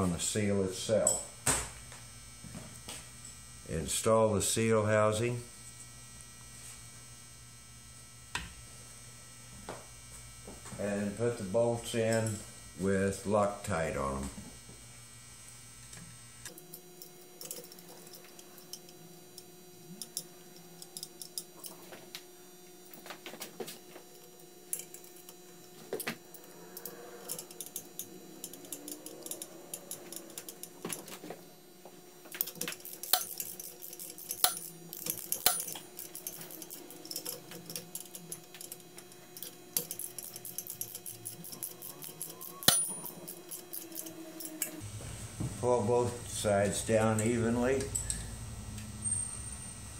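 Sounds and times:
faint steady hum: 0.0 - 49.9
metallic clicks of bolts and tools: 32.4 - 44.7.

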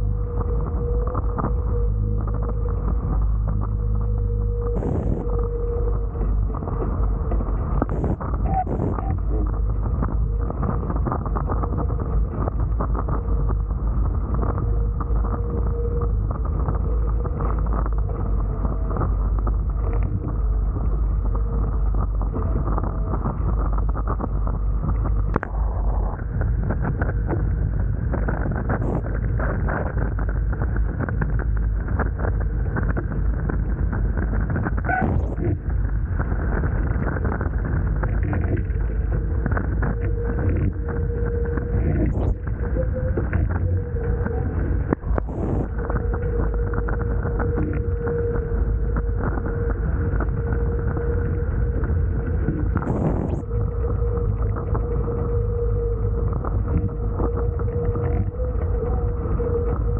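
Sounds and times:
wind buffeting microphone: 33.6 - 59.9.

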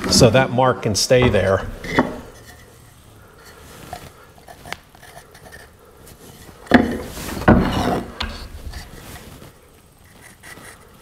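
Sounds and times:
wood scraping against wood: 0.0 - 11.0
wood knocking on workbench: 1.2 - 2.3.

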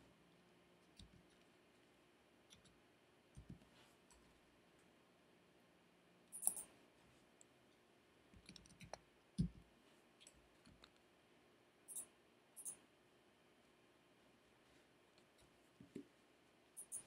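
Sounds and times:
computer mouse clicks: 2.5 - 2.8, 6.3 - 6.7, 8.3 - 9.6, 11.9 - 12.8, 16.8 - 17.0.

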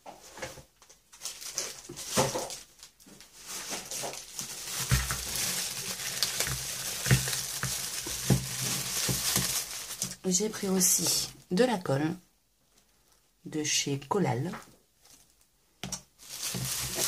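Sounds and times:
plastic packaging crinkling: 0.8 - 11.4, 15.0 - 17.0.

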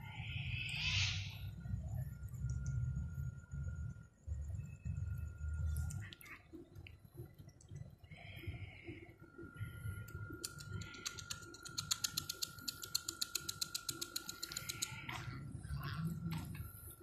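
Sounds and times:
faint high whine: 0.0 - 17.0
rapid sharp clicks: 10.0 - 15.1.

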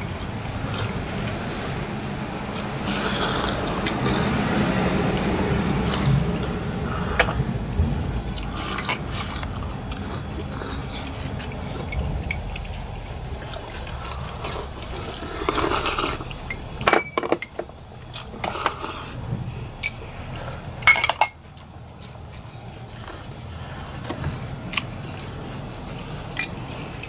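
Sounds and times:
liquid sloshing: 0.0 - 27.0
steady background noise: 0.0 - 27.0
bowls and spoons clinking: 15.4 - 17.7, 20.8 - 21.4.

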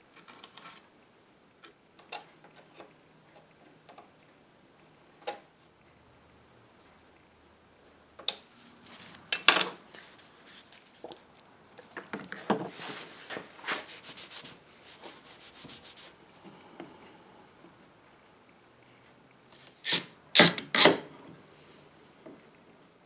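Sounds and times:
paper towel scrubbing: 12.7 - 16.2.

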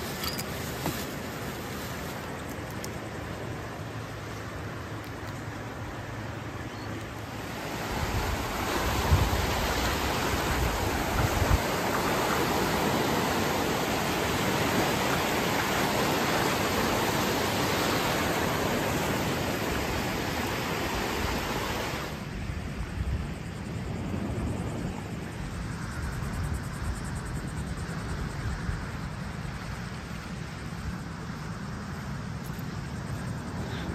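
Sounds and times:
ocean waves breaking on beach: 0.0 - 26.0
wind thumps on microphone: 8.0 - 12.6.

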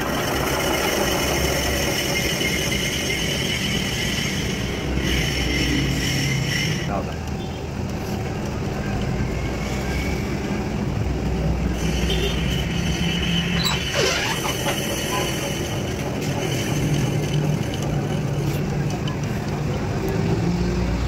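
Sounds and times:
metal lathe humming: 0.0 - 6.9, 11.7 - 18.9.

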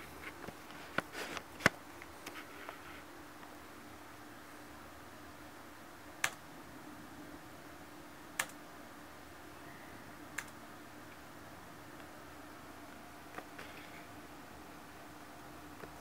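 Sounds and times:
faint steady hum: 0.0 - 16.0
sharp single clicks: 8.4 - 8.6.

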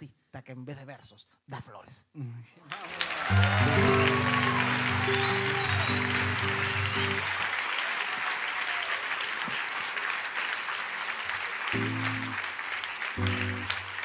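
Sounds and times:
audience applauding: 2.7 - 14.0
acoustic guitar strummed chords: 3.4 - 7.2, 11.8 - 12.4, 13.2 - 13.7.

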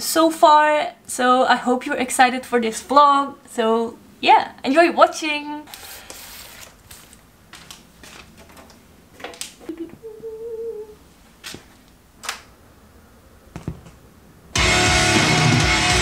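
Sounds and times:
vinyl record rustling: 5.7 - 10.0.

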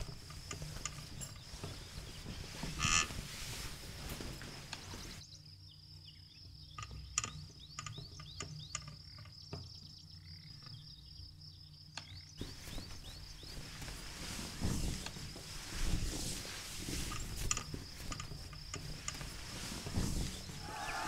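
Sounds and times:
high insect trill: 0.0 - 21.0
bird chirps: 20.4 - 21.0.

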